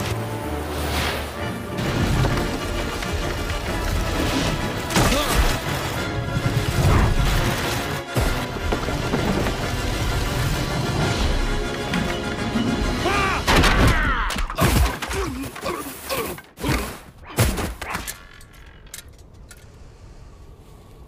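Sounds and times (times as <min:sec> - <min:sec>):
dramatic cartoon music: 0:00.0 - 0:16.4.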